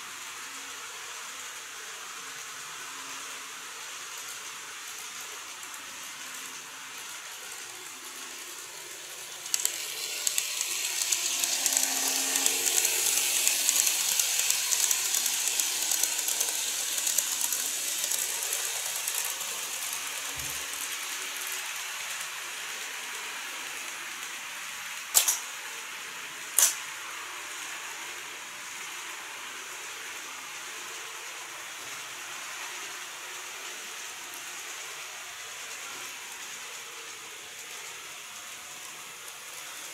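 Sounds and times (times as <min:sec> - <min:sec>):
model train wheels clattering: 0:04.4 - 0:21.5, 0:25.1 - 0:25.6, 0:26.5 - 0:26.9
faint motor hum: 0:05.8 - 0:21.3
sharp clicks: 0:25.2 - 0:25.4, 0:26.6 - 0:26.8.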